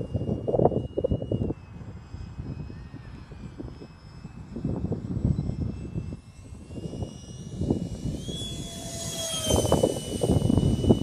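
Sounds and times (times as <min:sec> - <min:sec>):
low gusty rumble: 0:00.0 - 0:11.0
rc jet whining overhead: 0:00.0 - 0:11.0.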